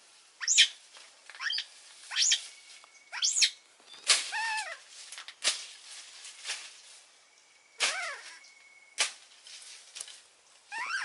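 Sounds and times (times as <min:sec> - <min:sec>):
baby monkey squealing: 0:00.4 - 0:00.7, 0:01.4 - 0:02.4, 0:03.2 - 0:03.6, 0:07.8 - 0:08.4, 0:10.7 - 0:11.0.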